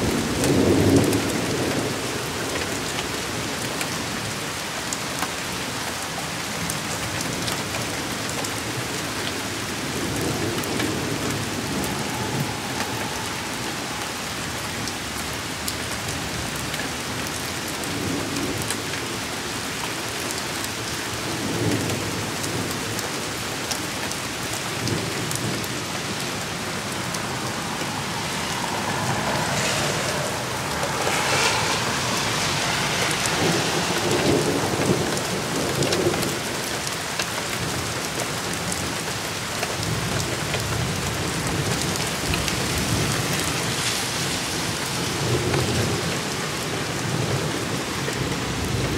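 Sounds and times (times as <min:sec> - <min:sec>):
heavy rain falling: 0:00.0 - 0:48.9
thunder rumbling: 0:08.7 - 0:16.6, 0:21.2 - 0:36.7.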